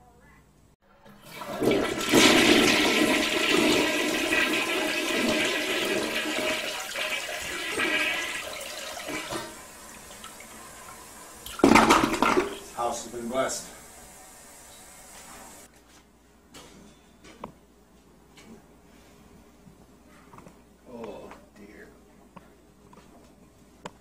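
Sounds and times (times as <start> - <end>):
toilet flushing: 0.9 - 15.7.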